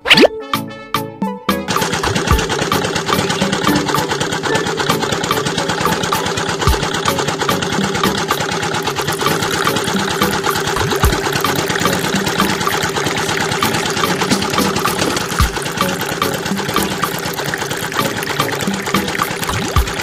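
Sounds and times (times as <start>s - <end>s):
electric motor driving rollers: 1.8s - 20.0s.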